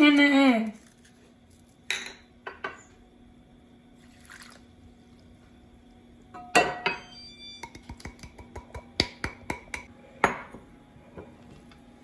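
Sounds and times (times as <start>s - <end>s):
water poured into meal: 4.0s - 5.3s.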